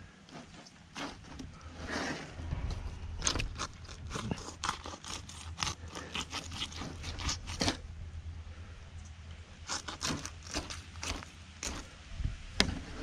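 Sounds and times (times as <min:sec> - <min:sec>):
knife cutting through fish: 0:00.3 - 0:01.5, 0:03.2 - 0:07.8, 0:09.6 - 0:11.9.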